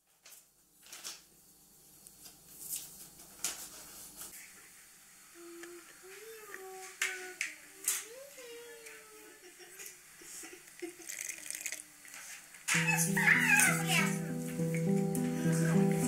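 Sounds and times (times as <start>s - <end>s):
soft wavering melody: 12.8s - 16.0s.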